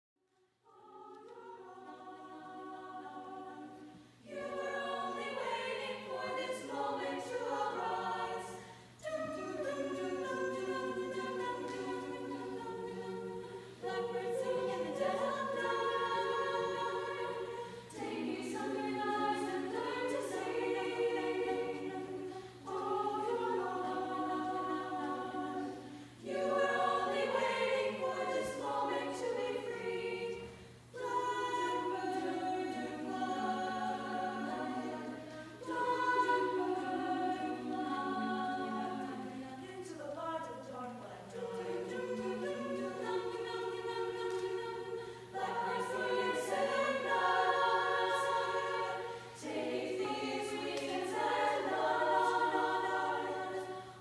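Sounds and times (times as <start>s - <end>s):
choir singing: 0.4s - 54.0s.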